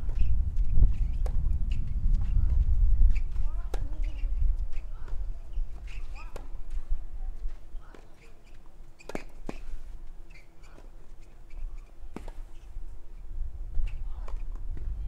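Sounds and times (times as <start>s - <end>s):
tennis ball hit by rackets: 3.7s - 4.2s, 12.1s - 12.4s.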